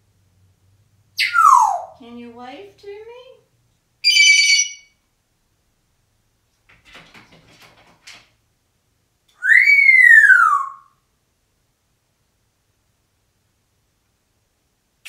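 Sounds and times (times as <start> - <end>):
parrot whistle rising and falling: 1.2 - 1.9, 4.0 - 4.8, 9.4 - 10.9
parrot beeping: 1.2 - 2.0, 4.0 - 5.0, 9.4 - 10.9.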